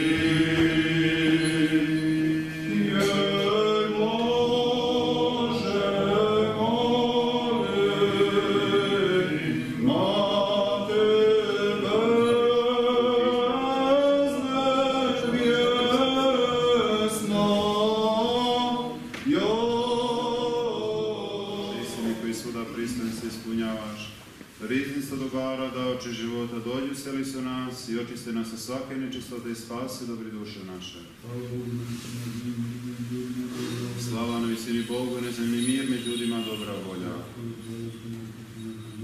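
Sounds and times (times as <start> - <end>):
choir singing a cappella chant: 0.0 - 23.0, 31.2 - 39.0.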